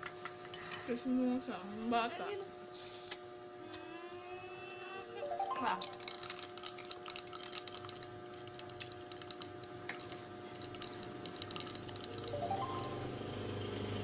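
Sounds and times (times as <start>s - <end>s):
plastic baby rattle shaken: 5.5s - 13.0s
rising engine-like tone: 12.3s - 14.0s.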